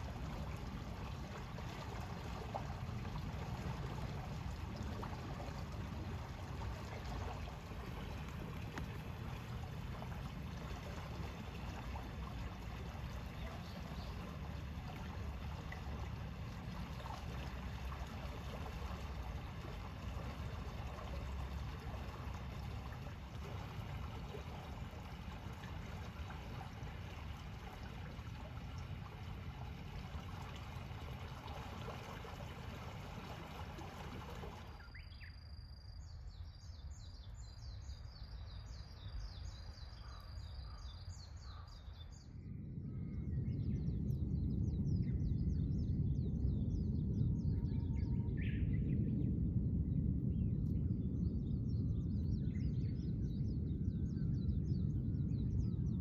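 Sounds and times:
low rumble: 41.2s - 56.0s.

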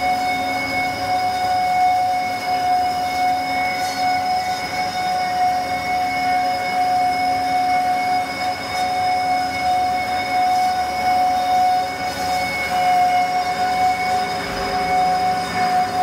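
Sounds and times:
band saw whining: 0.0s - 16.0s
machine noise: 0.0s - 16.0s.

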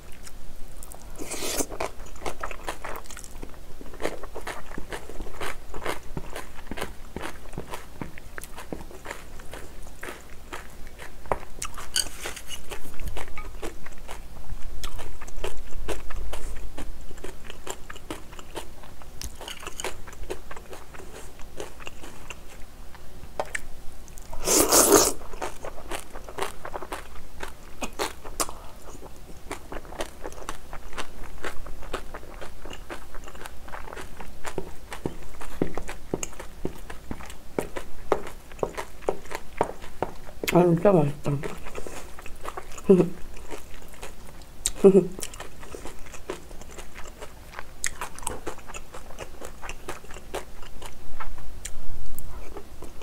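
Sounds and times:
crunching kimchi: 0.0s - 14.2s, 23.4s - 40.6s, 41.3s - 51.8s
chewing food: 0.0s - 40.6s, 41.2s - 53.0s.

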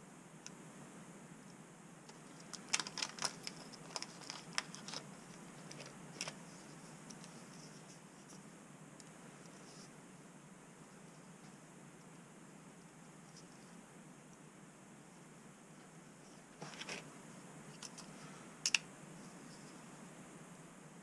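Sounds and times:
faint room hiss: 0.0s - 21.0s
plastic bag crinkling: 2.2s - 6.4s
small parts clicking: 17.7s - 18.9s.

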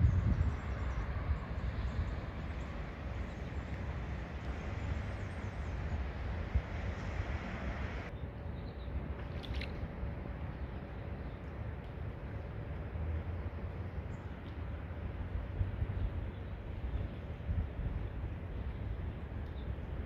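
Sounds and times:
wind buffeting microphone: 0.0s - 8.1s, 15.0s - 20.0s
rain hiss: 1.1s - 8.1s.

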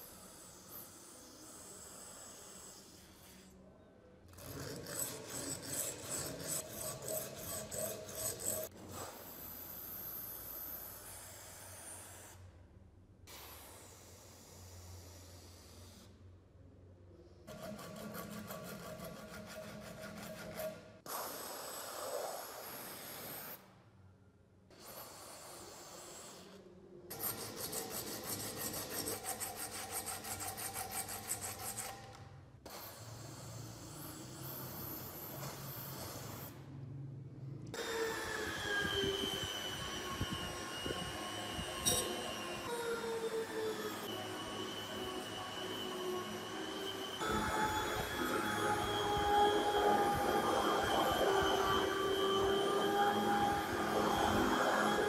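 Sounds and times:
sandpaper rubbing on brass: 4.5s - 8.7s, 27.2s - 32.0s.

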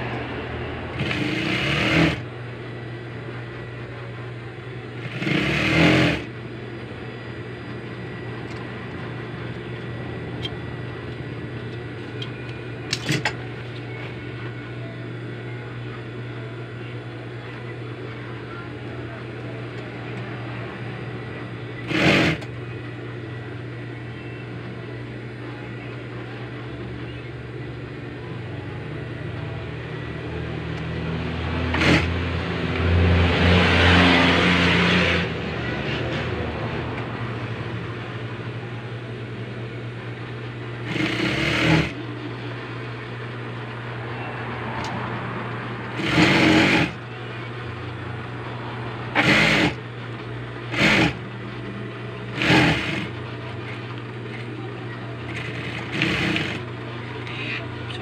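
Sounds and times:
sewing machine motor humming: 0.0s - 3.8s, 4.6s - 14.6s, 18.7s - 22.6s, 31.5s - 35.4s, 40.4s - 43.7s, 44.8s - 58.0s
sewing machine stitching: 0.9s - 2.2s, 5.0s - 6.3s, 21.8s - 22.5s, 31.7s - 32.2s, 40.8s - 42.0s, 45.9s - 47.0s, 49.1s - 49.8s, 50.7s - 51.2s, 52.3s - 53.2s, 55.3s - 56.7s.

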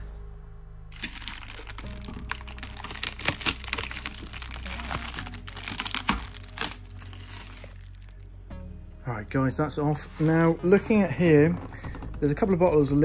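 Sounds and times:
plastic film crinkling: 0.9s - 8.3s.

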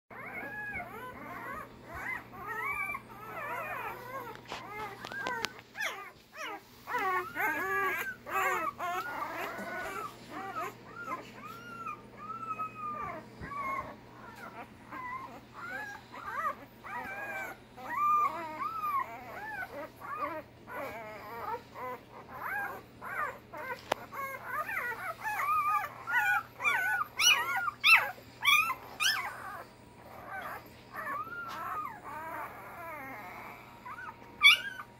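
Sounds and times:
puppies whimpering and squeaking: 0.1s - 34.9s.

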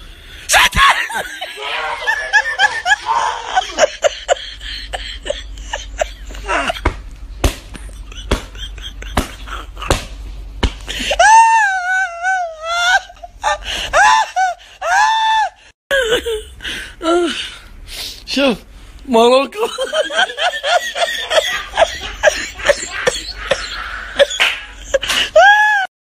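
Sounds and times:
person crying out: 0.5s - 4.1s, 6.2s - 6.9s, 11.0s - 13.2s, 13.9s - 17.4s, 25.3s - 25.9s
person wailing: 0.5s - 4.1s, 6.2s - 6.9s, 11.0s - 13.1s.

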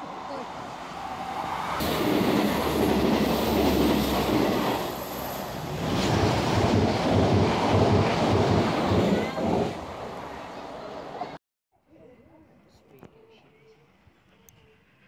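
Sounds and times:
train wheels rushing on rail: 0.6s - 11.4s.

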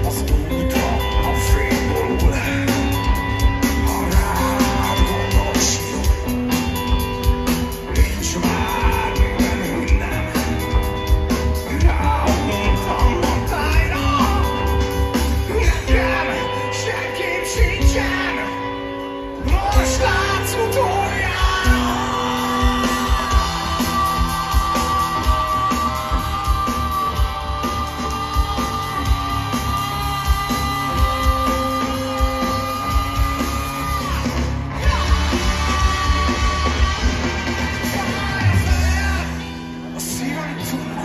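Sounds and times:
live rock band through pa: 0.0s - 41.0s
person singing a long high note: 19.4s - 39.4s.

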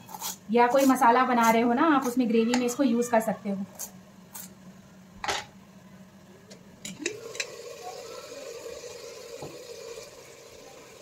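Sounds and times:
chicken sizzling: 7.0s - 11.0s.

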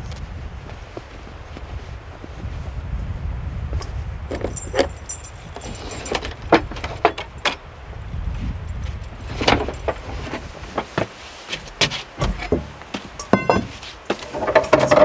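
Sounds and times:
steady low rumble: 0.0s - 5.7s, 6.3s - 10.8s
sharp knocks: 11.8s - 13.8s.

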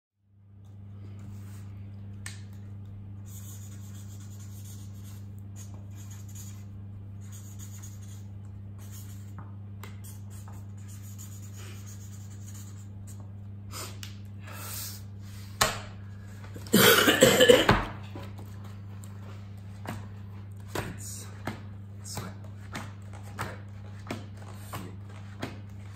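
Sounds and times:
steady low hum: 0.2s - 25.9s
marker scratching on paper: 3.2s - 13.3s
person coughing: 16.6s - 17.9s.

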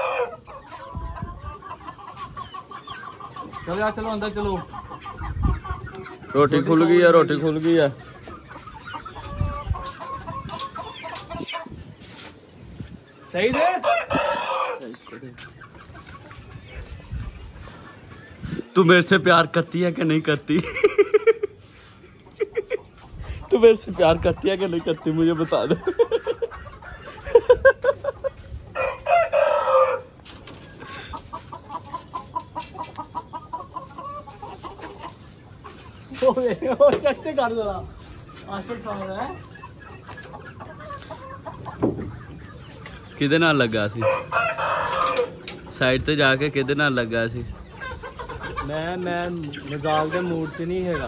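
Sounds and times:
roosters clucking: 0.0s - 51.0s
rooster crowing: 28.8s - 30.1s, 44.0s - 45.4s.

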